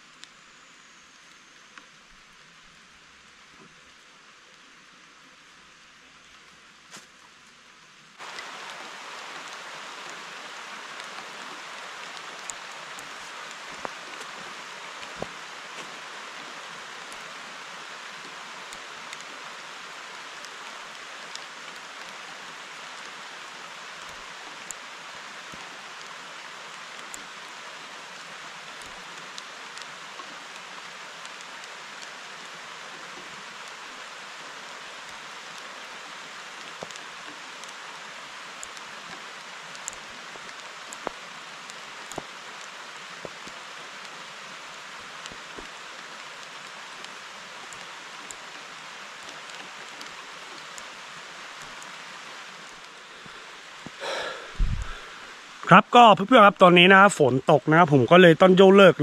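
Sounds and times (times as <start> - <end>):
steady rain falling: 0.0 - 59.0
rain drop taps: 8.2 - 16.2, 38.6 - 44.1.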